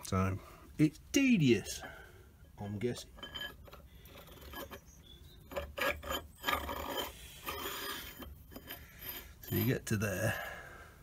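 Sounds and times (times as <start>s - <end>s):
metal parts scraping: 3.0s - 9.8s.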